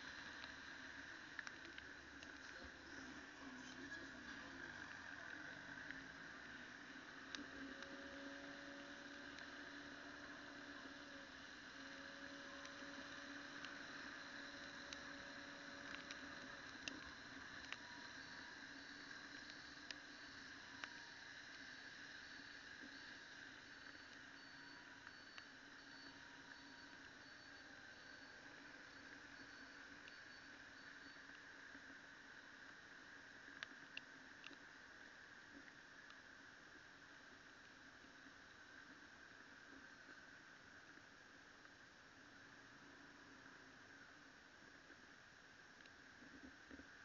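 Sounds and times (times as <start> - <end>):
muffled motorcycle hum: 0.0 - 41.4
faint steady hiss: 0.0 - 47.0
light ticks: 1.3 - 2.8, 7.2 - 21.7, 22.7 - 32.0, 33.4 - 36.2.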